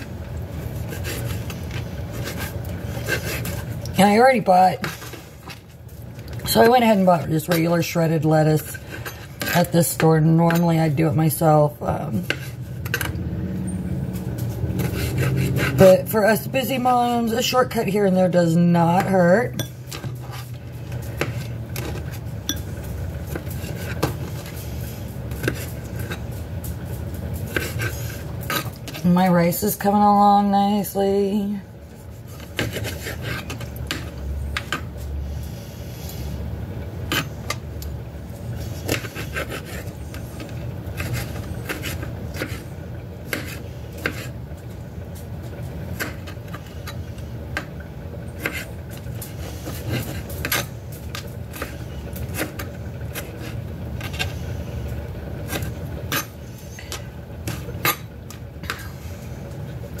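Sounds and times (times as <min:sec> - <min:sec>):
knife scraping: 0:00.0 - 0:03.9, 0:08.6 - 0:10.8, 0:14.2 - 0:16.4, 0:18.8 - 0:29.2, 0:31.9 - 0:34.7, 0:37.0 - 0:37.6, 0:38.4 - 0:44.4, 0:48.3 - 0:59.0
low steady hum: 0:00.0 - 1:00.0.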